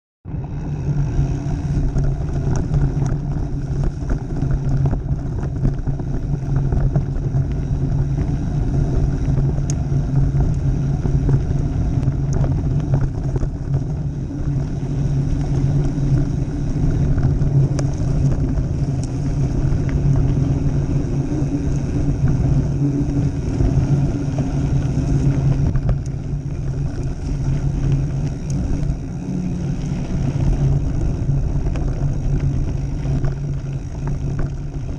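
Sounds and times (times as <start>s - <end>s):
bike clicks and rattles: 0.3s - 34.9s
bike tyres rolling over dirt: 0.3s - 34.9s
steady low hum: 0.3s - 34.9s.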